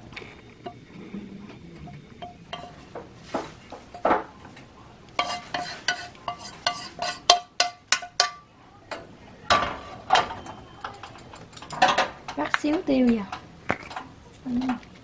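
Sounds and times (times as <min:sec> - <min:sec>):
utensil scraping dishware: 0:00.6 - 0:04.3, 0:05.2 - 0:08.4
metal utensil clinking: 0:01.8 - 0:03.0, 0:09.5 - 0:14.9.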